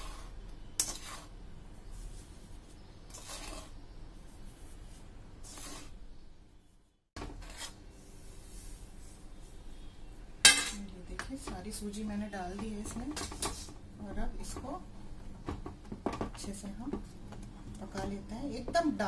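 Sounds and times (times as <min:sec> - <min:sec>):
spoon scraping steel cookware: 0:00.0 - 0:01.4.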